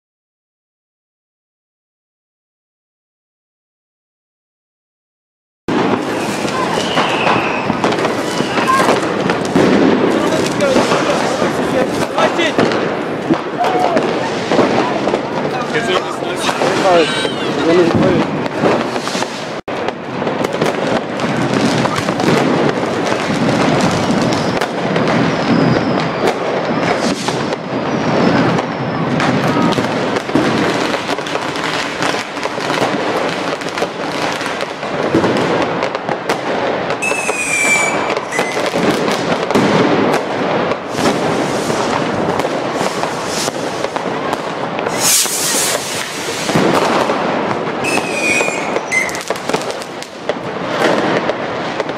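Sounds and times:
firework whistle: 5.7s - 11.6s, 23.5s - 31.9s, 36.9s - 39.7s, 40.8s - 44.1s, 44.8s - 50.0s
fireworks bangs and crackling: 5.7s - 51.9s.

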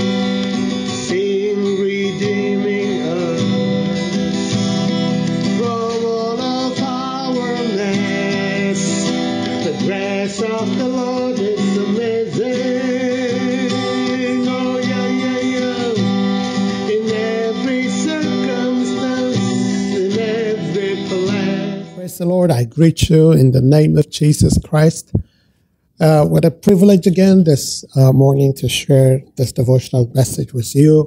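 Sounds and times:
man singing: 0.0s - 4.6s, 5.4s - 25.3s
acoustic guitar: 0.0s - 31.0s.

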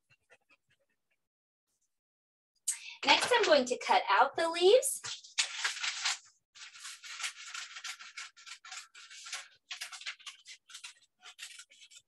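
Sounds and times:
scissors snipping paper: 5.1s - 12.0s.

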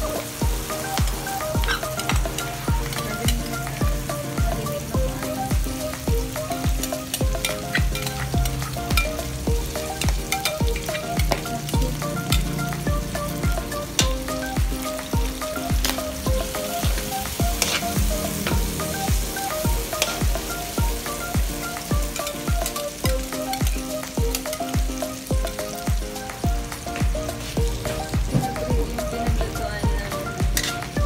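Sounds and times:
background music with beat: 0.0s - 31.0s
food sizzling in a wok: 0.0s - 31.0s
metal spatula scraping a pan: 1.6s - 2.1s, 17.5s - 18.4s, 20.0s - 20.2s.

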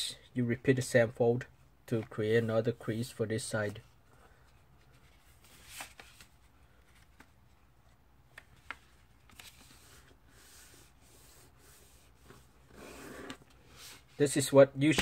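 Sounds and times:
paper rustling and crinkling: 4.8s - 7.5s, 8.4s - 10.1s.

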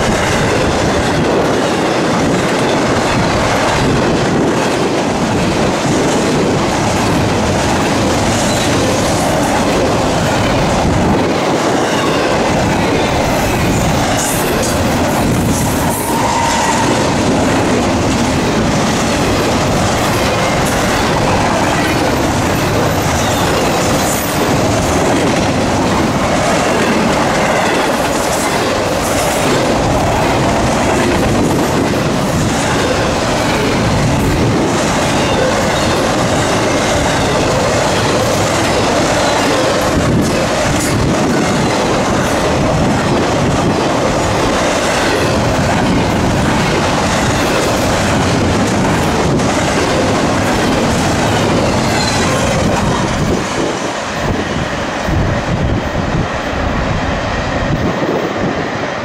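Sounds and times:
freight train wheels on rail: 0.0s - 59.0s
wheel squeal: 51.8s - 52.4s.

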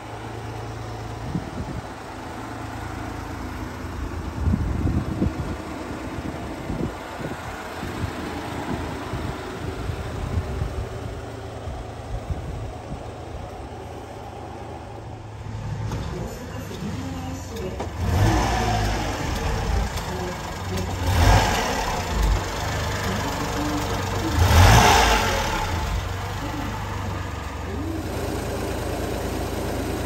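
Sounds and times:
truck engine idling: 0.0s - 30.0s
wind buffeting microphone: 4.2s - 13.2s.

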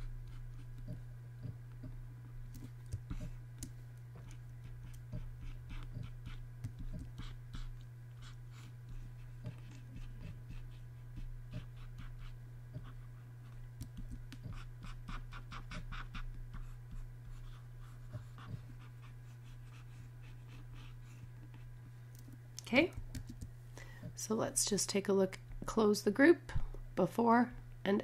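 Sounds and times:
stylus scratching drawing tablet: 0.0s - 2.0s, 2.6s - 3.4s, 4.2s - 21.7s
low electrical hum: 0.0s - 28.0s.

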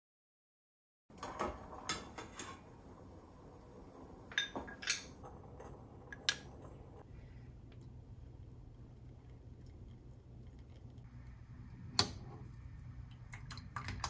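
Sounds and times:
faint steady hum: 2.7s - 14.0s
dishes and utensils clinking: 4.3s - 6.8s.

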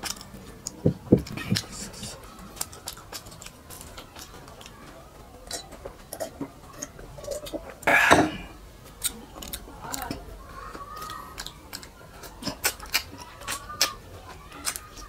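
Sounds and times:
mouth noises: 0.6s - 2.3s
fingers clicking on clay plate: 9.0s - 15.0s.

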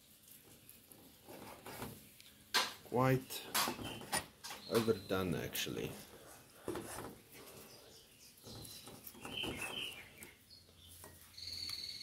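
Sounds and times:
faint bird chirps: 3.4s - 5.6s, 7.4s - 12.0s.

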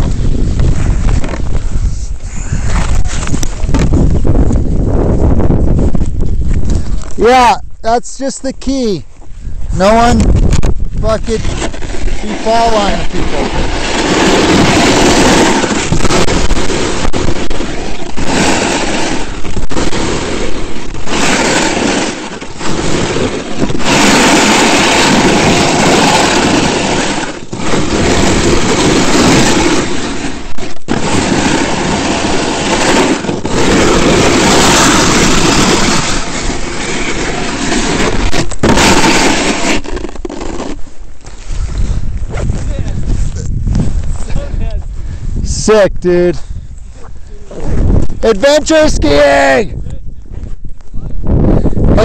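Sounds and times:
skis scraping on icy snow: 0.0s - 7.3s, 11.0s - 44.6s
wind buffeting microphone: 0.0s - 52.0s.

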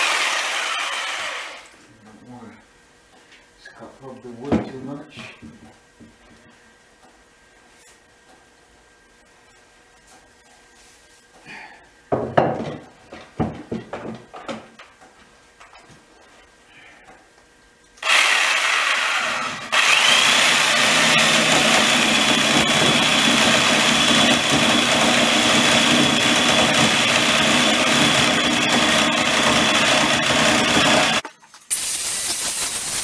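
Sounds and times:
electric drill boring into log: 0.0s - 1.7s, 18.0s - 33.0s.

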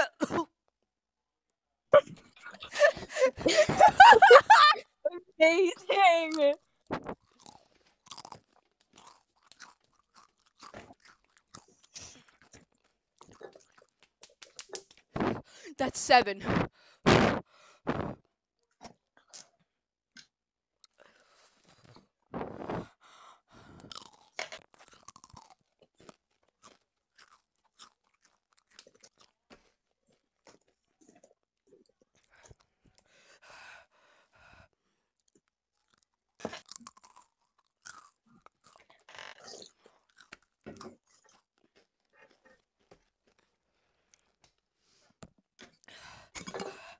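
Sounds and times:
person chewing crunchy snack: 6.3s - 15.4s, 23.6s - 33.0s, 35.2s - 44.4s.

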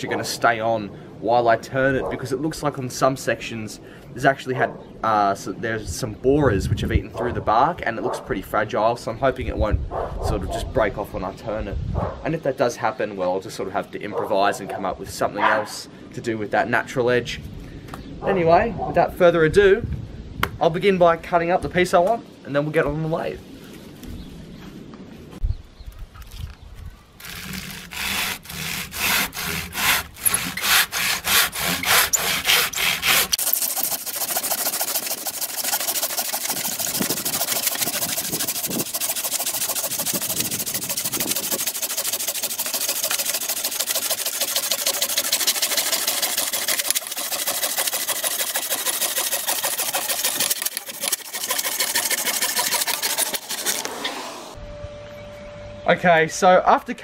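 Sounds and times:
hand saw cutting log: 27.2s - 54.2s.

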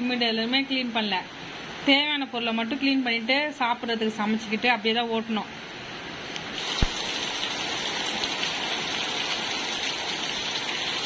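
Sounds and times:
rain on concrete and pans: 6.4s - 11.0s.

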